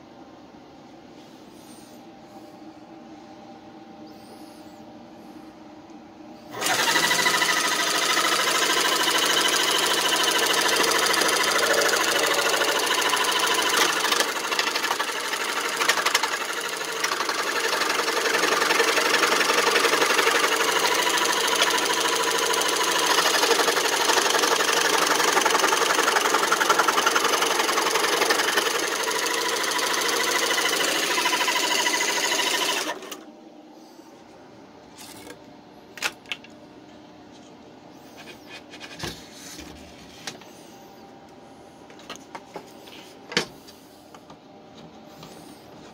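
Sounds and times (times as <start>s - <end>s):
scroll saw cutting wood: 6.5s - 33.2s.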